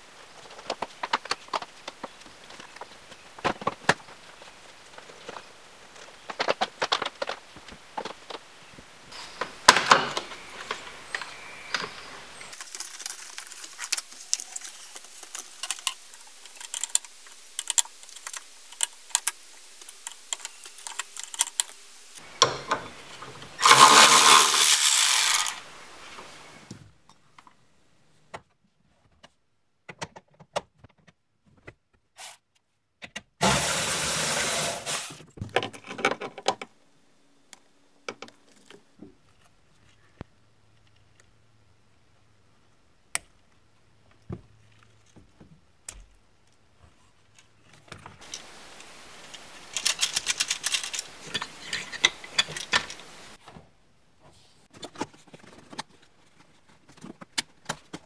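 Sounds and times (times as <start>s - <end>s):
cordless electric ratchet running: 23.6s - 25.6s.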